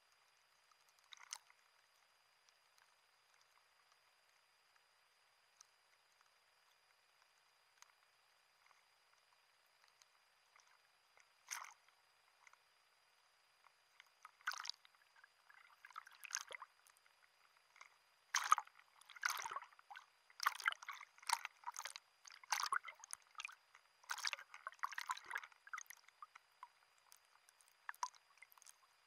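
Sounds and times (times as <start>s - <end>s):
sea water sloshing and splashing: 1.0s - 1.5s, 11.4s - 12.6s, 14.0s - 29.0s.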